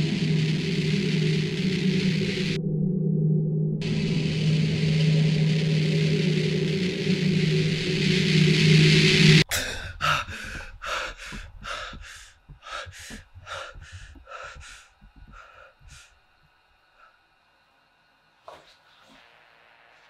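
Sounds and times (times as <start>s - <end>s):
loud rushing drone: 0.0s - 16.1s
person breathing hard: 9.4s - 16.2s.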